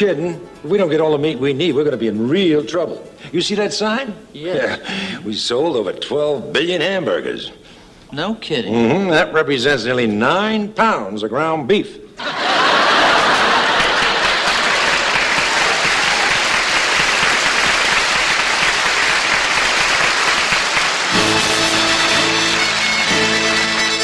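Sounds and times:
audience applause: 0:12.2 - 0:24.0
band music with held notes: 0:18.6 - 0:24.0.

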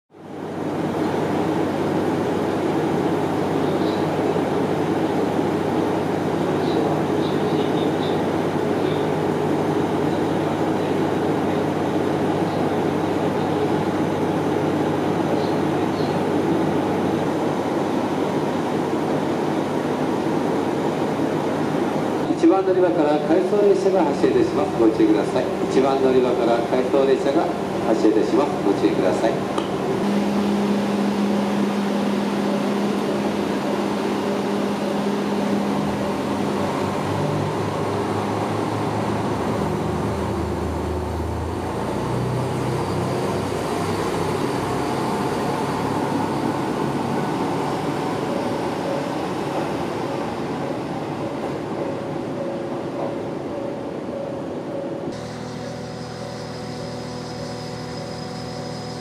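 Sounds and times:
diesel railcar engine: 0:00.1 - 0:59.0
electric train humming: 0:00.1 - 0:59.0
wheel and rail noise: 0:23.4 - 0:59.0.

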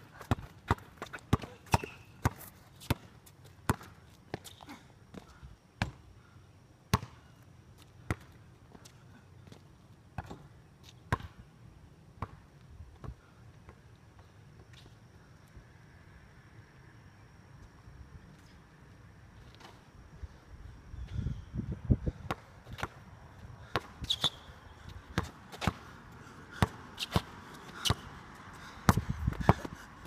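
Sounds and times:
basketball bouncing on concrete: 0:00.2 - 0:04.5, 0:05.8 - 0:06.0, 0:06.9 - 0:07.2, 0:08.0 - 0:08.4, 0:10.2 - 0:10.5, 0:22.1 - 0:23.0, 0:23.6 - 0:24.4, 0:25.1 - 0:25.9, 0:26.5 - 0:28.2, 0:28.8 - 0:29.8.

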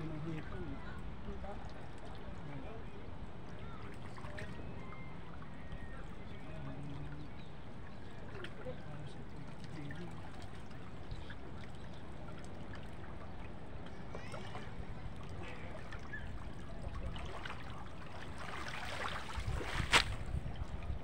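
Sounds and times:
water trickling and sloshing: 0:00.0 - 0:21.0
small splashes and knocks: 0:03.5 - 0:04.7, 0:07.0 - 0:21.0.

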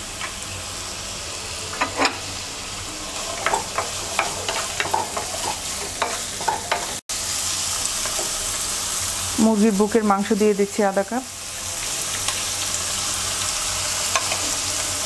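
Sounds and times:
vegetables sizzling in oil: 0:00.0 - 0:15.0
spatula knocking and scraping pan: 0:03.2 - 0:07.0.

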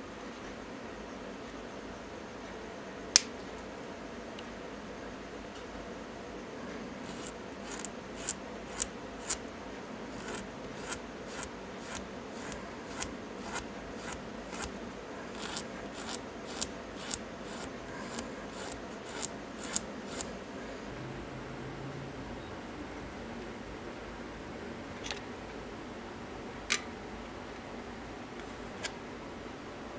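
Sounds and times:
abrasive stick scraping metal pin: 0:07.0 - 0:09.4, 0:10.1 - 0:14.7, 0:15.3 - 0:20.3.

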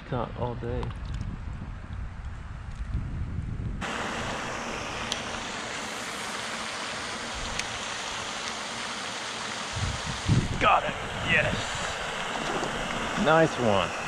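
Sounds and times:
steady rushing hiss: 0:03.8 - 0:14.0.

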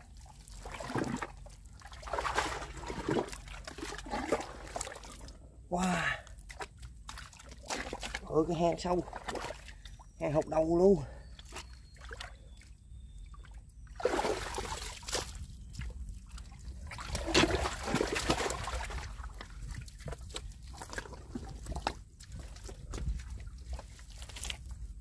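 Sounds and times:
wet mud squelching: 0:00.0 - 0:25.0
small wet clicks: 0:19.3 - 0:24.8.

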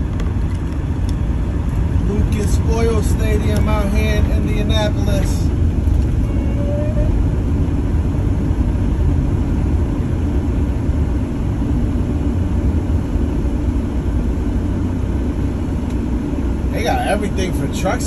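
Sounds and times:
road noise: 0:00.0 - 0:18.0
truck diesel engine rumbling: 0:00.0 - 0:18.0.

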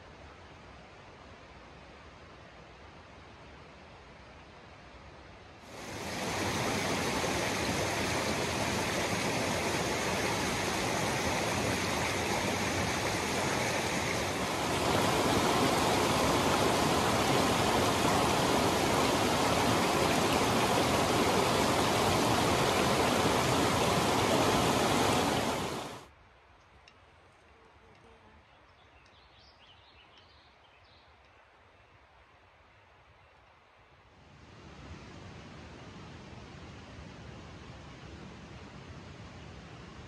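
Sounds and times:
creek rushing over rocks: 0:05.7 - 0:26.1.

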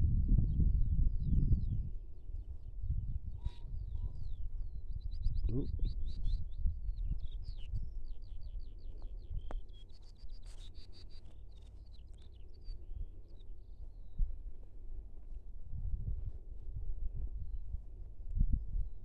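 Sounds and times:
low rumble: 0:00.0 - 0:09.6, 0:11.2 - 0:19.0
small birds chirping and trilling: 0:00.5 - 0:15.2.

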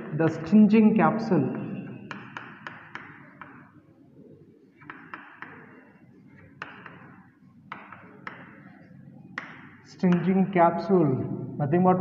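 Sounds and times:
chalk tapping on chalkboard: 0:02.1 - 0:03.8, 0:04.8 - 0:10.4.

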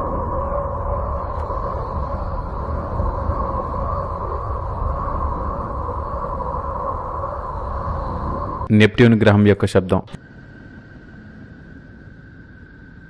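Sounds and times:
low rumbling drone with hum: 0:00.0 - 0:09.4.

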